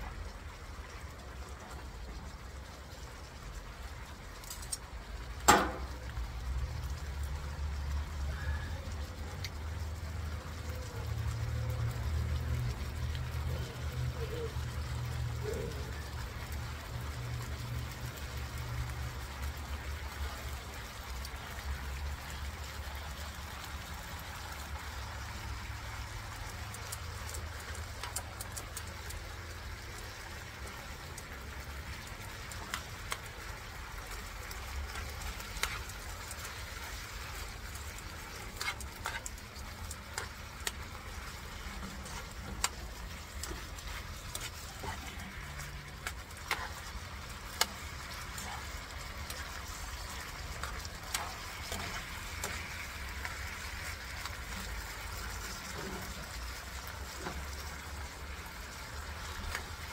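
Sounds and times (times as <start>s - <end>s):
meat sizzling in sauce: 0.0s - 59.9s
gas burner rumble: 4.6s - 59.9s
metal tongs scraping a pan: 34.9s - 52.9s.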